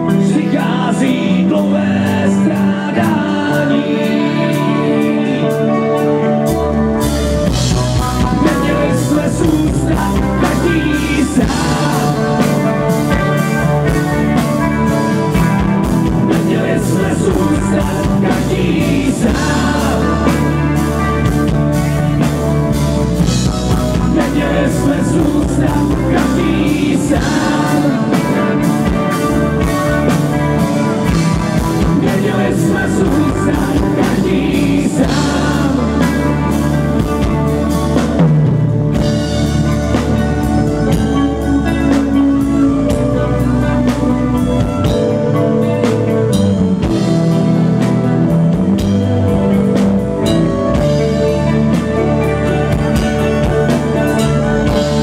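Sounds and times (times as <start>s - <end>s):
men singing: 0.0s - 6.5s, 7.5s - 22.4s, 23.2s - 38.2s, 51.6s - 55.0s
bass notes: 0.0s - 55.0s
electric and acoustic guitars: 0.0s - 55.0s
drum kit beat: 7.0s - 55.0s.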